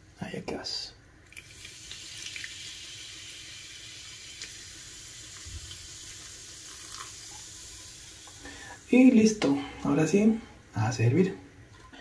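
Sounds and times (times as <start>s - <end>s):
fizzing soda pour: 1.3s - 9.1s.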